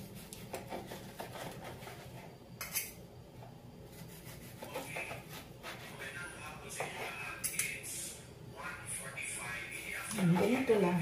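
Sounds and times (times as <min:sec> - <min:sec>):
knife cutting meat on plastic board: 0:00.1 - 0:02.1, 0:03.9 - 0:06.0.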